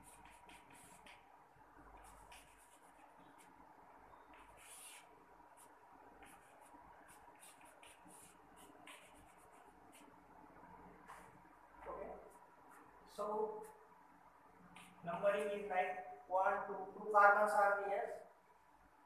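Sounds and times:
chalk scratching on chalkboard: 0.0 - 1.3, 2.0 - 3.6, 4.2 - 10.2, 14.7 - 15.5.

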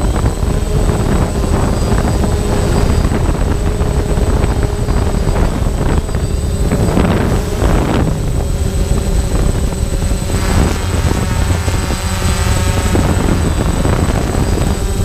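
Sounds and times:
drone propellers buzzing: 0.0 - 15.0
wind buffeting microphone: 0.0 - 15.0.

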